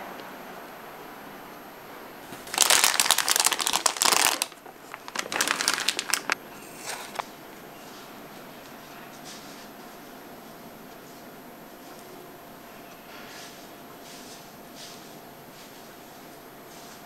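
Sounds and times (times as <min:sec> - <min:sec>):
plastic bag crinkling: 0:02.2 - 0:07.3.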